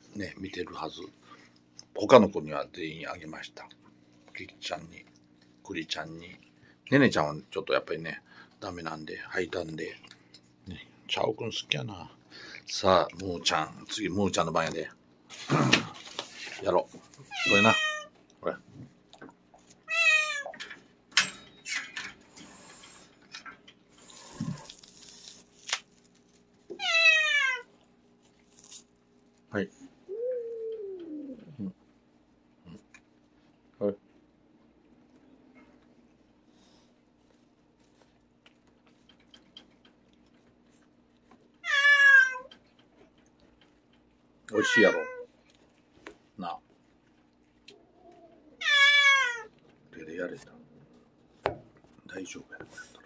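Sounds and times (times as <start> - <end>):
cat yowling: 17.3 - 18.1, 19.9 - 20.6, 26.7 - 27.7, 41.6 - 42.5, 44.5 - 45.3, 48.0 - 49.5.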